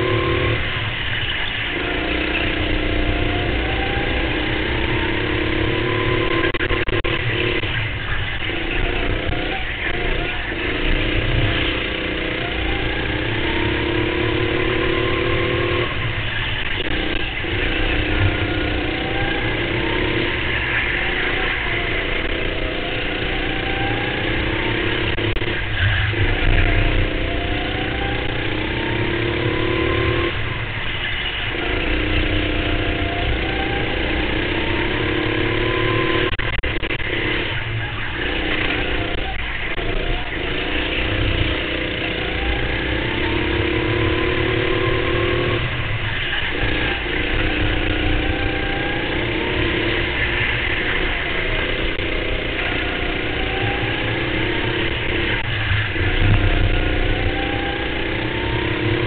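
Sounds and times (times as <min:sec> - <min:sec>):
go-kart engine at racing speed: 0:00.0 - 0:59.0.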